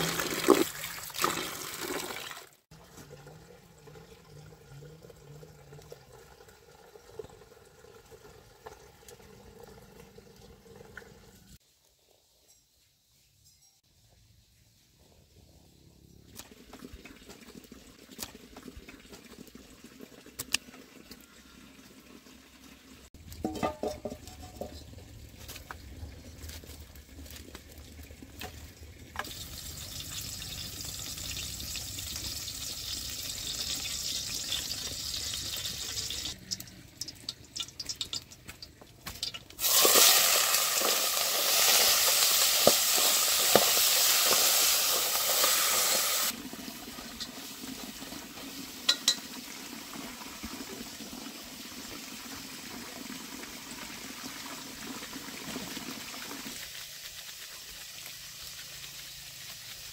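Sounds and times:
food sizzling in a pot: 29.2 - 59.9.

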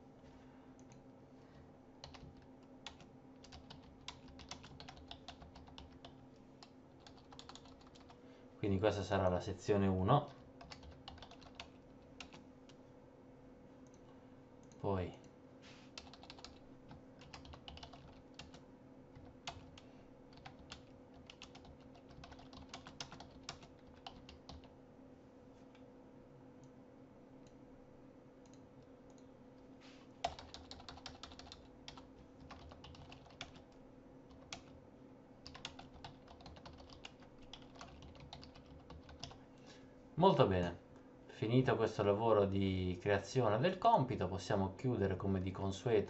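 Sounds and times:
typing on computer keyboard: 2.0 - 8.2, 10.3 - 12.4, 16.0 - 18.6, 19.2 - 24.7, 30.2 - 33.7, 34.3 - 34.8, 35.4 - 39.4.

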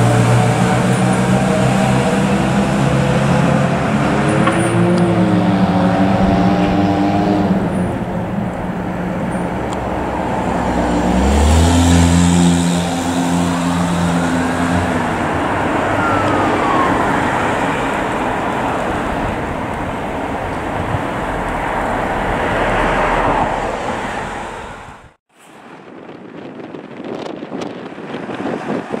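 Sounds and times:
fire engine driving: 0.0 - 27.0
street traffic: 0.0 - 29.0
faint siren wail: 10.2 - 25.0.

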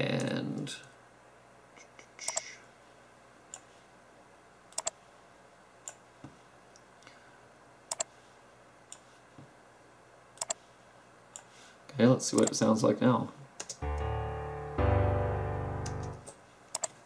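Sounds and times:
computer mouse buttons clicking: 2.2 - 2.5, 4.7 - 5.0, 7.9 - 8.1, 10.4 - 10.6, 16.7 - 17.0.

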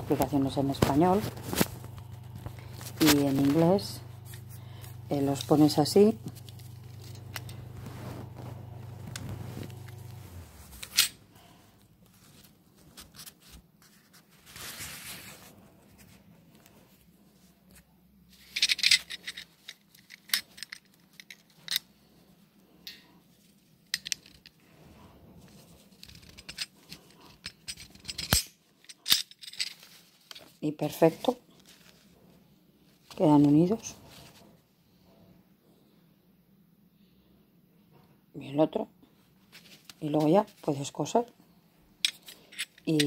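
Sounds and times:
low hum: 0.0 - 12.2
fabric rustling: 0.0 - 18.6, 29.6 - 34.7, 39.4 - 40.8.

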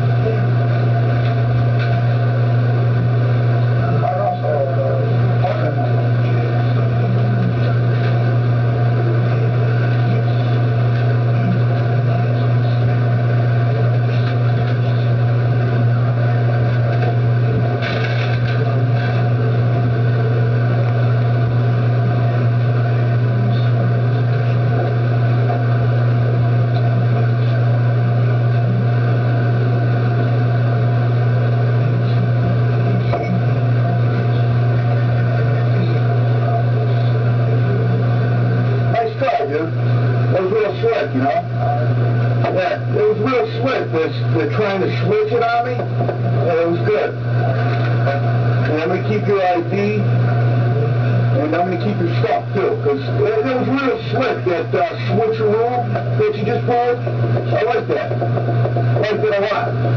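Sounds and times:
low hum with hiss: 0.0 - 59.9.

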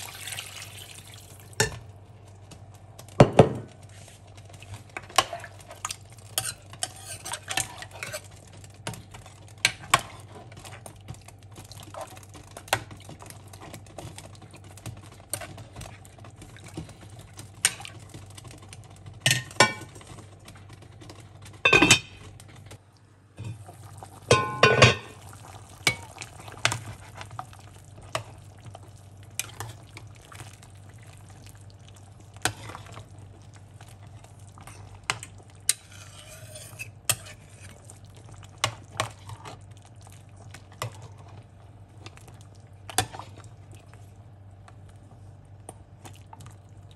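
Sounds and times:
utensils clattering in a pot: 4.9 - 10.7, 19.2 - 20.4, 21.0 - 22.3, 24.3 - 27.4, 34.6 - 37.8
spoon scraping a pot: 6.3 - 8.4, 34.6 - 37.8.

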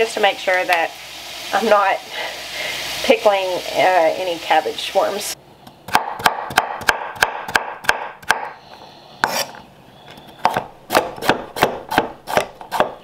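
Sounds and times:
knife chopping on wooden board: 5.9 - 8.5, 9.2 - 9.6, 10.4 - 13.0.

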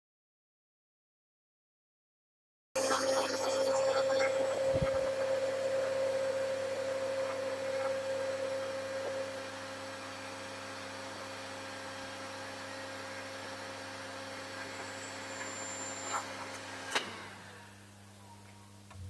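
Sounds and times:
heat gun blower humming: 2.8 - 18.0.

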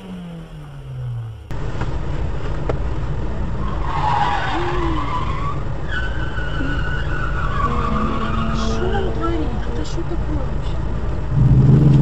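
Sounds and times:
car engine idling: 0.0 - 12.0
high-pitched squeal: 3.6 - 10.0.

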